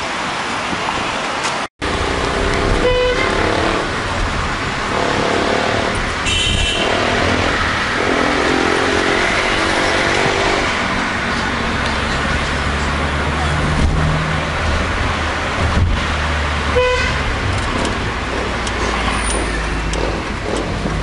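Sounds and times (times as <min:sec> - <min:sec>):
engine and road rumble: 0:00.0 - 0:21.0
vehicle horns honking: 0:02.6 - 0:03.9, 0:04.9 - 0:10.1, 0:16.7 - 0:17.3.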